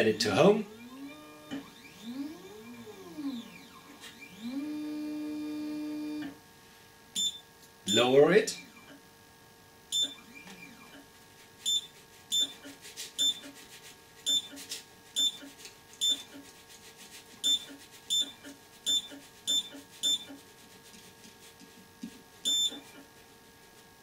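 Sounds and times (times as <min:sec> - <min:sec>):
short high touchscreen beeps: 0:07.2 - 0:08.9, 0:10.0 - 0:10.9, 0:11.7 - 0:12.6, 0:13.2 - 0:13.4, 0:14.3 - 0:14.5, 0:15.2 - 0:15.4, 0:16.0 - 0:16.3, 0:17.4 - 0:20.3, 0:22.5 - 0:22.9.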